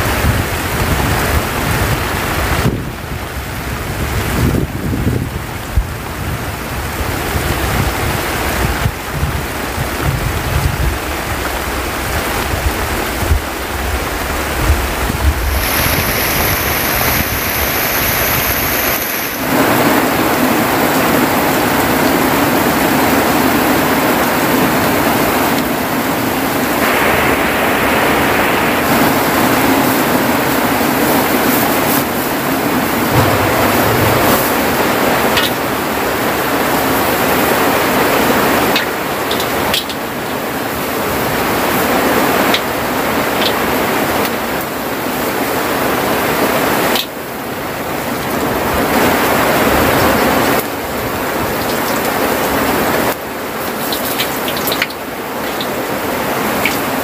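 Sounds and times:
wind rumble on microphone: 0.0 - 39.9
heavy rain pouring off roof: 0.0 - 57.0.

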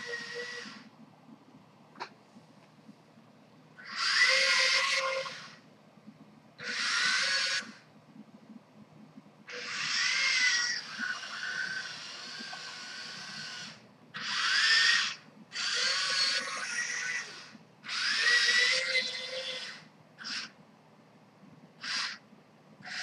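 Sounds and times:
electric motors whirring: 0.0 - 0.9, 9.5 - 20.5.

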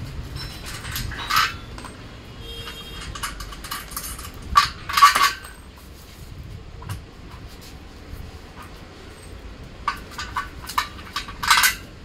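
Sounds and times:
metal clinks and knocks: 0.0 - 12.0
ringing metal clanks: 0.2 - 5.7.

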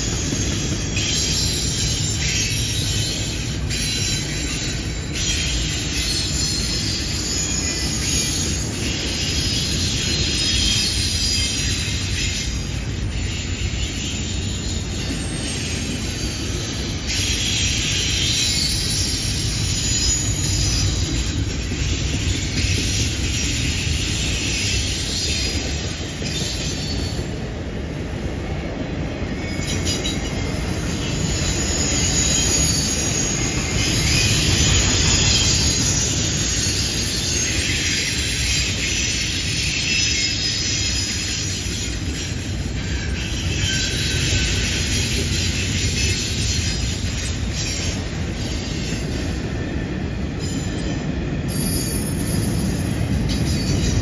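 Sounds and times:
high-pitched wheel squeal: 0.0 - 12.3, 13.2 - 21.4, 29.4 - 49.0
train wheels rumbling on rail: 0.0 - 54.0.

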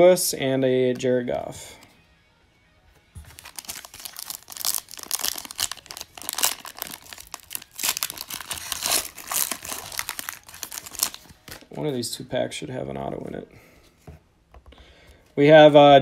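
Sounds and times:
foil wrapper tearing and crinkling: 3.3 - 11.7.

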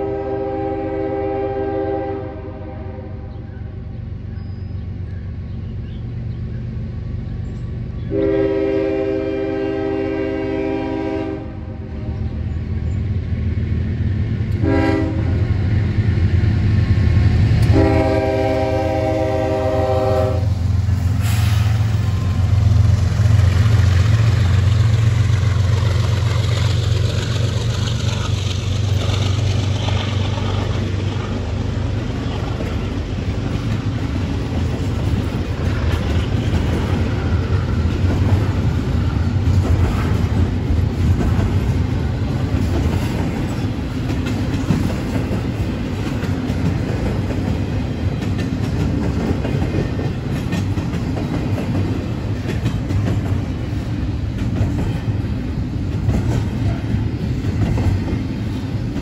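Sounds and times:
locomotive horn: 0.0 - 3.3, 8.1 - 11.9, 14.6 - 15.6, 17.6 - 22.7
train rumble with wheel clatter: 0.0 - 59.0.

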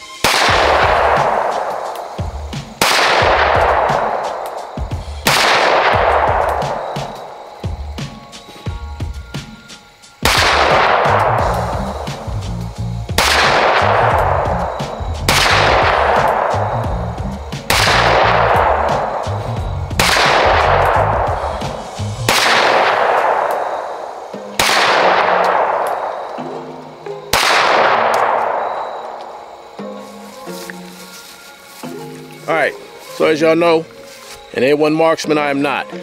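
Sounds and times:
pistol shots echoing: 0.2 - 7.5, 10.2 - 11.5, 13.2 - 14.3, 15.3 - 16.6, 17.7 - 19.3, 20.0 - 21.4, 22.3 - 26.4, 27.2 - 29.6.

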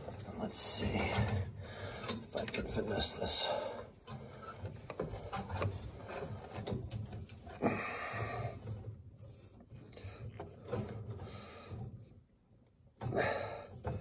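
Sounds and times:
wire scraping against cabinet: 4.0 - 12.2.

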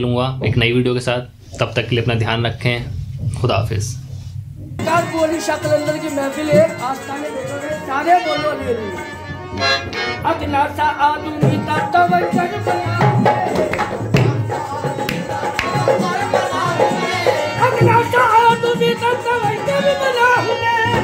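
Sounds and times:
percussion strokes: 4.7 - 10.6, 11.4 - 21.0
man singing: 4.8 - 9.3, 10.0 - 21.0
harmoniums playing: 4.8 - 21.0.

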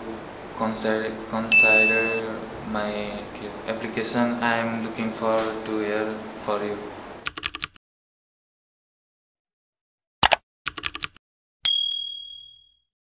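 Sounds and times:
notification bell ding: 1.5 - 2.2, 11.7 - 12.8.

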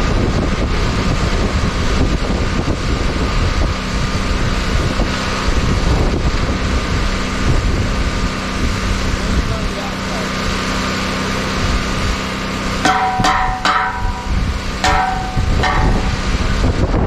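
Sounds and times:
wind buffeting microphone: 0.0 - 9.8, 13.2 - 17.0
small engine running: 0.6 - 17.0.

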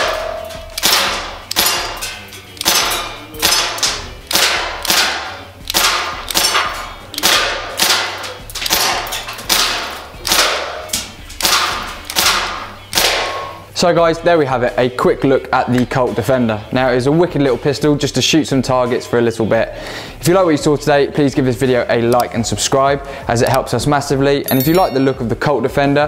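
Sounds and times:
air pistol shots cracking: 0.0 - 2.0, 2.6 - 13.6
metal targets ringing: 0.0 - 5.6, 24.5 - 25.7.

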